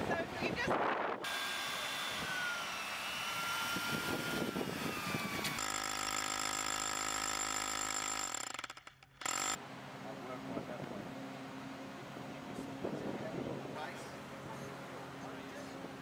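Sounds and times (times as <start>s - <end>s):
hammer drill boring into stone: 2.5s - 9.6s.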